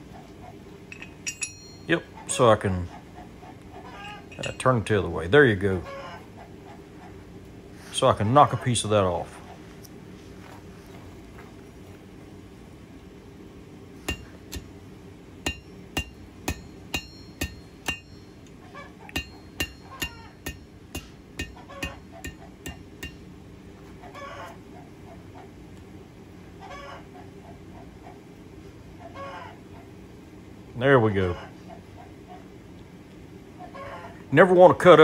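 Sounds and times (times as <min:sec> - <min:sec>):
hammer ringing on hot steel: 0:00.9 - 0:02.0, 0:14.1 - 0:14.7, 0:15.4 - 0:18.4, 0:19.1 - 0:23.3
chickens clucking: 0:02.1 - 0:04.4, 0:05.7 - 0:07.4, 0:08.1 - 0:09.8, 0:18.5 - 0:22.7, 0:23.8 - 0:25.6, 0:26.4 - 0:30.0, 0:31.2 - 0:32.6, 0:33.5 - 0:34.3.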